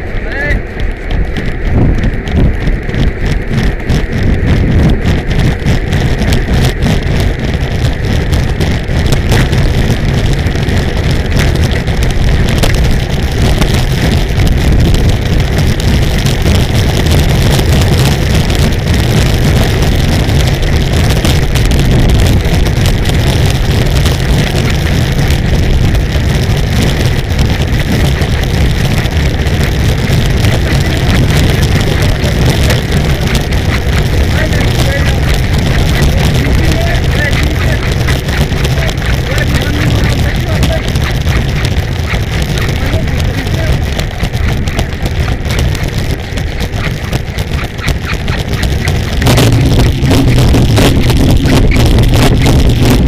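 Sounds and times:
road rumble: 0.0s - 53.0s
wind rush: 0.0s - 53.0s.

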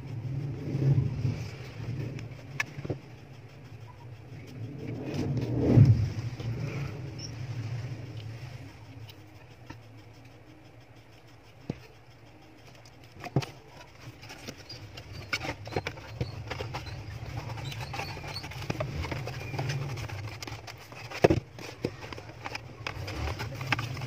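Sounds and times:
low steady hum: 0.0s - 24.0s
paper and cardboard rustling: 13.2s - 24.0s.

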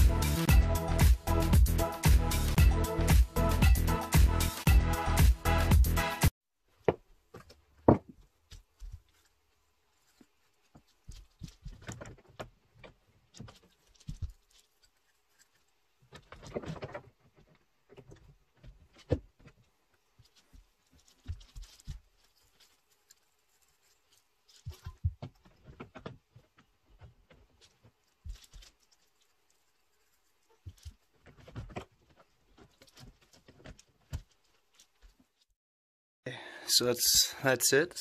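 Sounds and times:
shuffling: 6.7s - 35.5s.

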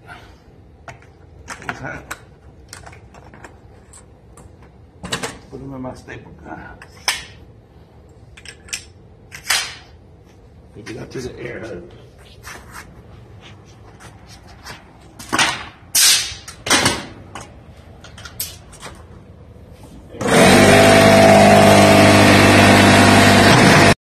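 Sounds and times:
pneumatic staple gun firing: 16.0s - 17.1s
air compressor motor hum: 19.7s - 24.0s.

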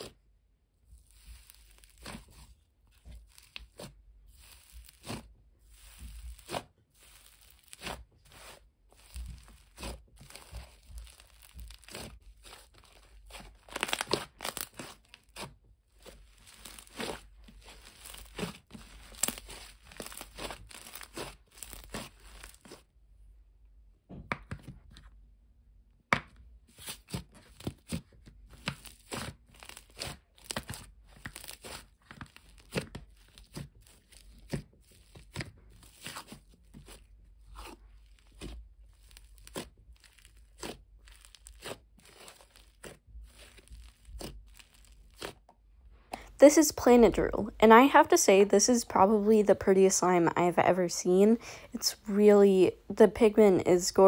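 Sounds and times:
slime crackling and popping: 1.0s - 22.9s, 26.8s - 45.6s.

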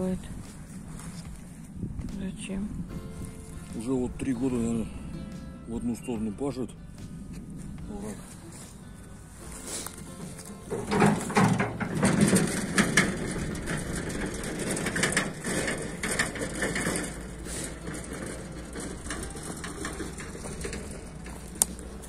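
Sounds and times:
footsteps crunching dry leaves: 7.1s - 10.7s.

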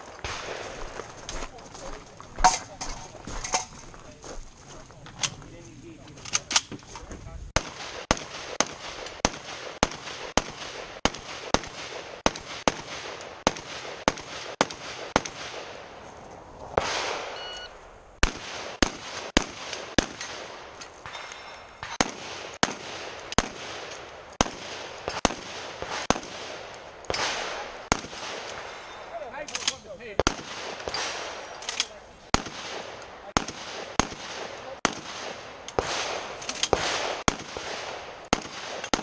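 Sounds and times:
rapid gunshots: 7.6s - 15.8s, 18.2s - 29.4s, 30.1s - 31.5s, 32.3s - 39.0s.

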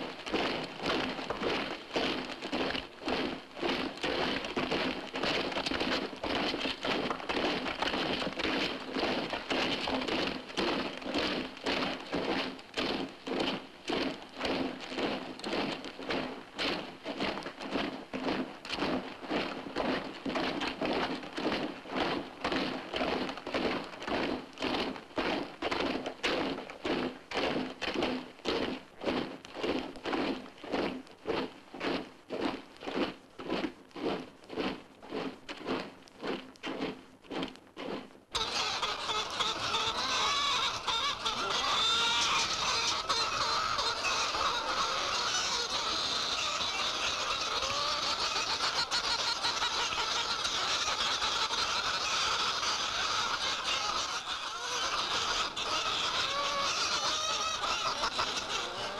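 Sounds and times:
chickens clucking and squawking: 38.4s - 58.9s.

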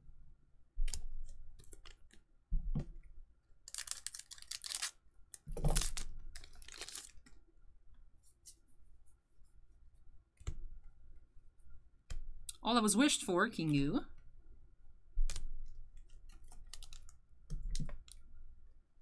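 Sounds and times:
card pack crinkling: 3.6s - 7.4s, 16.2s - 17.2s.

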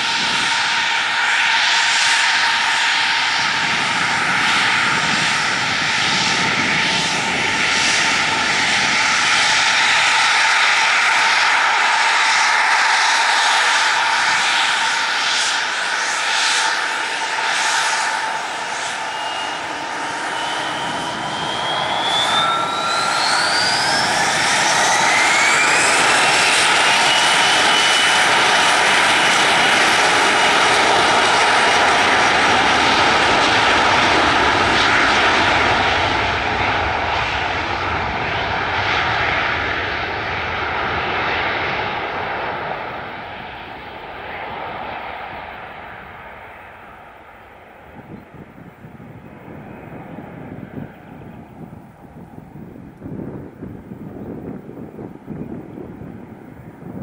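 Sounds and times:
jet engines spooling up: 0.0s - 57.0s.

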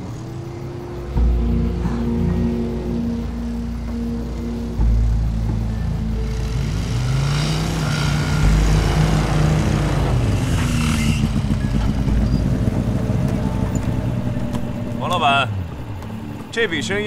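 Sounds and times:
small motorcycle engines running: 5.3s - 17.0s.

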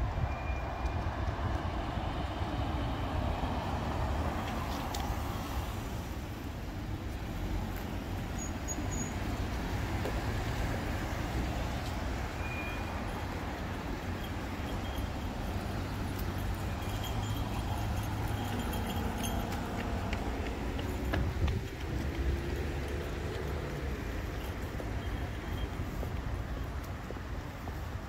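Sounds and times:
road traffic: 0.0s - 28.0s
wind buffeting microphone: 16.7s - 22.5s.

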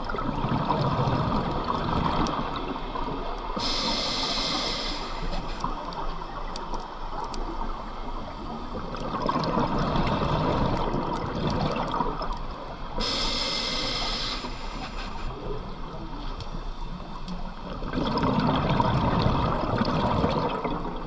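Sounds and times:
exhaled bubbles gurgling: 0.0s - 7.7s, 8.4s - 14.8s, 17.5s - 21.0s
regulator hissing inhale: 3.6s - 5.7s, 13.0s - 15.4s.

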